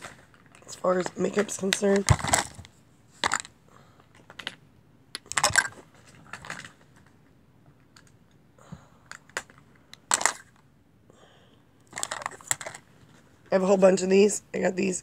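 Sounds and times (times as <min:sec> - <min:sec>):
packaging rustling: 0:11.9 - 0:12.9.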